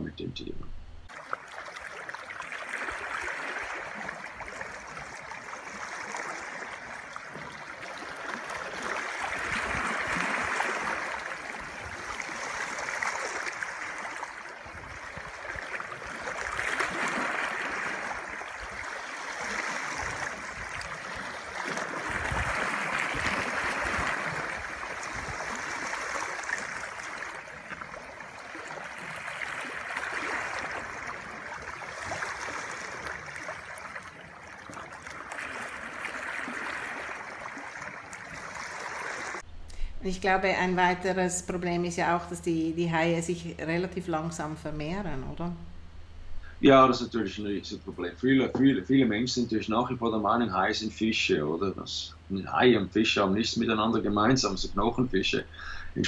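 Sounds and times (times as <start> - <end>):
underwater rushing bubbling water: 1.1 - 39.5.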